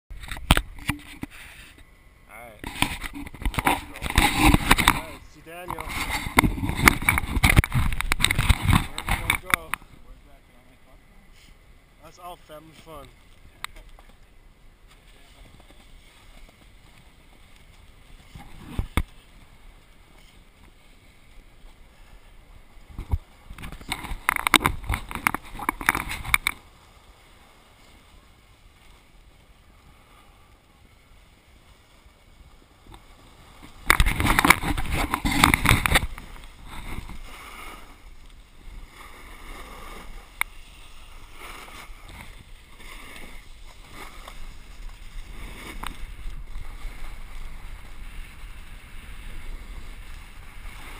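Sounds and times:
snowboard sliding over snow: 0.1s - 10.6s, 11.2s - 50.9s
snowboard edges scraping: 0.1s - 50.9s.

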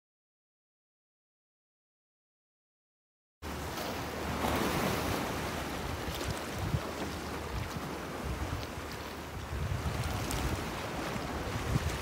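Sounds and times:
sea water lapping: 3.4s - 12.0s
wind on microphone: 4.3s - 12.0s.

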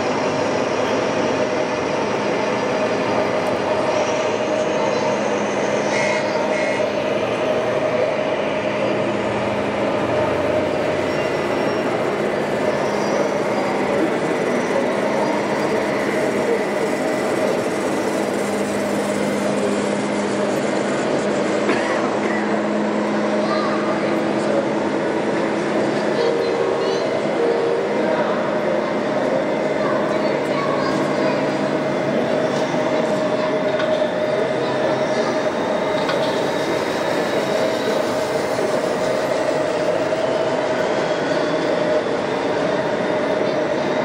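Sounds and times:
model trucks whining and rumbling: 0.0s - 44.0s
model trucks mechanical running: 9.2s - 21.6s
constant tone: 25.8s - 43.8s.

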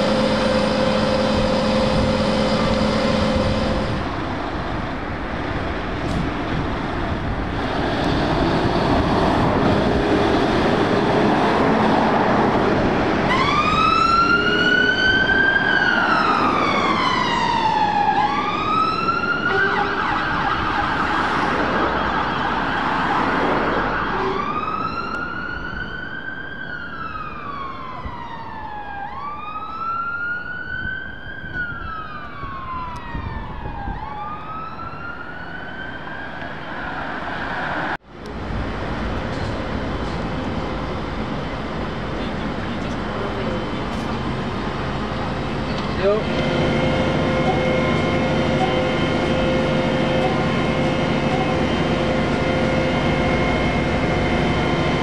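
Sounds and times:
siren wailing: 0.0s - 4.2s, 13.2s - 38.0s, 46.1s - 55.0s
fire engine running: 0.0s - 55.0s.

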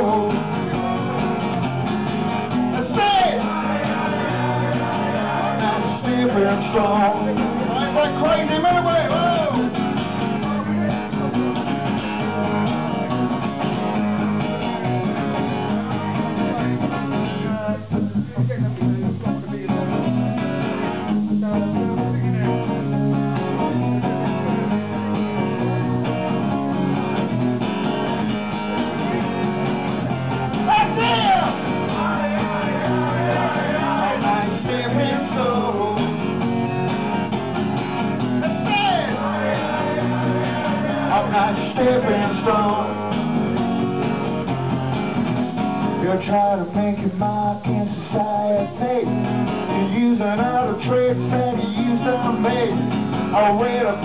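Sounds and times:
man singing: 0.0s - 1.0s, 2.7s - 9.7s, 30.7s - 36.4s, 38.4s - 43.2s, 46.0s - 54.0s
acoustic guitar strumming: 0.0s - 54.0s.

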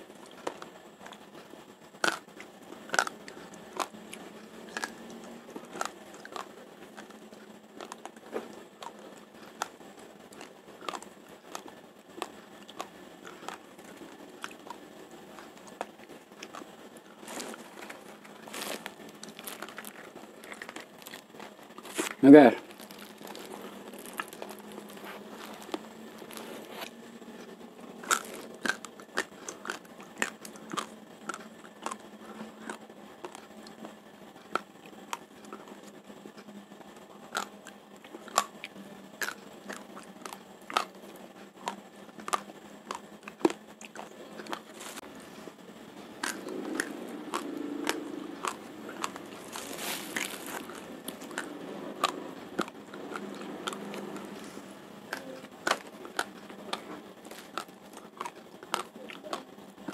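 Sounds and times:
rice grains crunching in mouth: 0.1s - 59.9s
plastic sack rustling: 17.2s - 21.2s, 21.8s - 26.9s, 49.2s - 51.3s.

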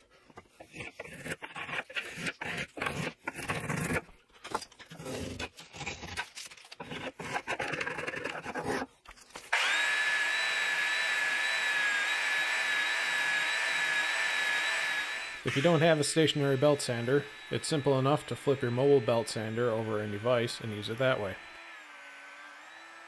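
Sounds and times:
spokeshave scraping wood: 0.1s - 9.7s
belt sander whining: 9.5s - 23.0s.

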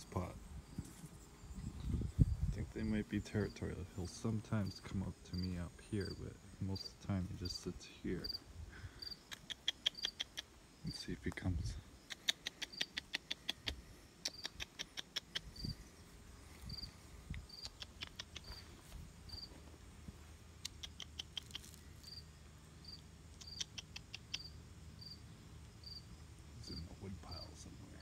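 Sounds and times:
cricket chirping: 0.0s - 28.0s
sharp high clicks: 9.2s - 10.6s, 12.0s - 15.6s, 17.3s - 18.5s, 20.6s - 21.8s, 22.9s - 24.5s.

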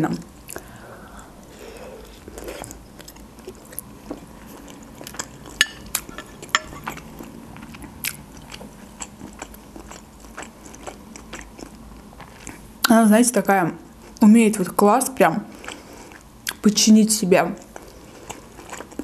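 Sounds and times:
close chewing of food: 0.4s - 12.8s, 15.4s - 16.6s, 17.6s - 19.0s.

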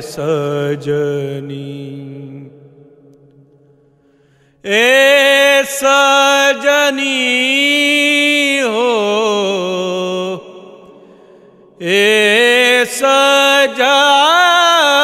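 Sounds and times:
man singing folk song: 0.0s - 2.5s, 11.8s - 15.0s.

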